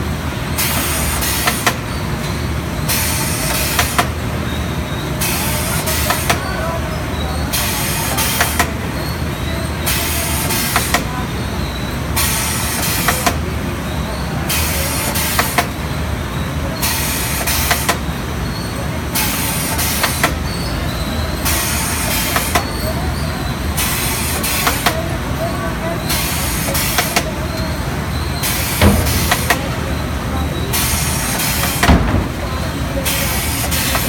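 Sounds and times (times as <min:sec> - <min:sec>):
steady machine hum: 0:25.8 - 0:34.0
sharp machine clacks: 0:28.6 - 0:32.7.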